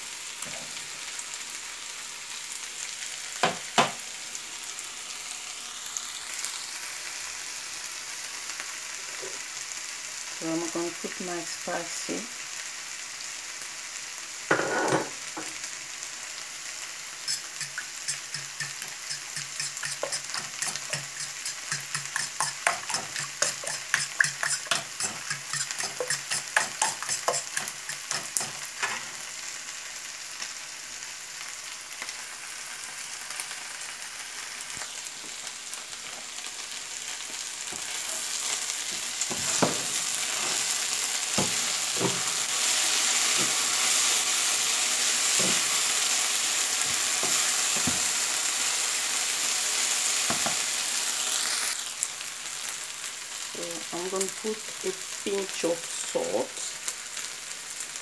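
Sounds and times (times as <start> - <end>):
food sizzling in a pan: 0.0 - 58.0
knock: 3.4 - 4.0
eggs beaten in a bowl: 17.3 - 28.6
spatula stirring pan: 17.3 - 29.1, 37.3 - 44.2.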